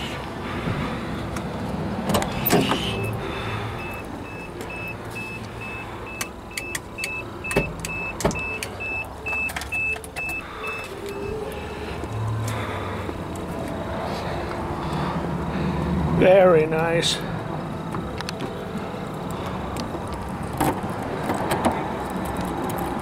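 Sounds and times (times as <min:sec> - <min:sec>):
car warning chime beeping: 0:02.8 - 0:03.2, 0:03.8 - 0:12.0.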